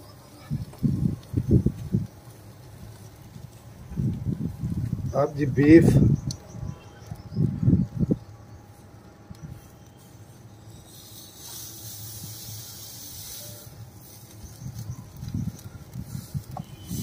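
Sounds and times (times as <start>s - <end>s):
soft hiss from oven: 0.0s - 17.0s.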